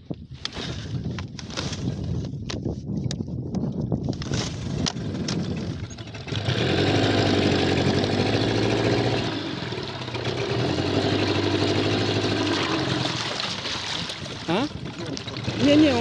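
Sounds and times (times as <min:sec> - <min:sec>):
outboard motor running: 0:04.1 - 0:16.0.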